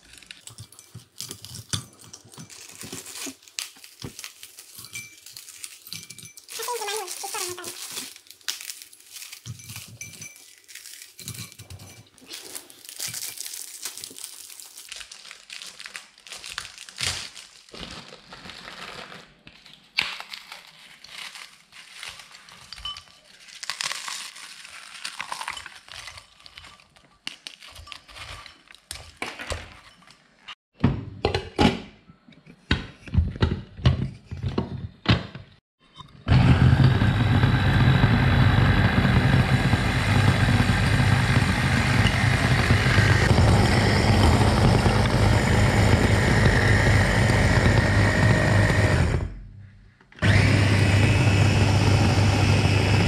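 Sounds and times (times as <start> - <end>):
packaging crinkling: 0.0 - 29.8
biscuits being crushed: 0.0 - 30.4.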